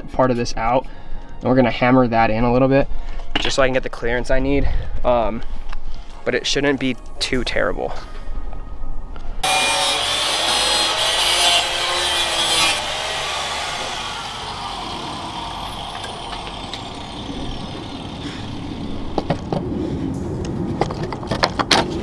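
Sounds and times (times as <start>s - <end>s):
power tool cutting: 9.4s - 19.5s
power tool whine: 9.4s - 19.5s.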